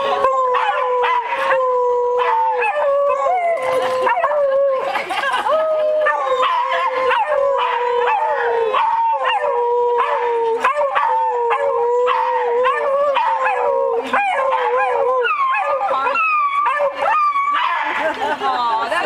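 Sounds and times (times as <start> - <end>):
dogs howling and baying: 0.0 - 18.1
dogs barking: 6.1 - 18.1.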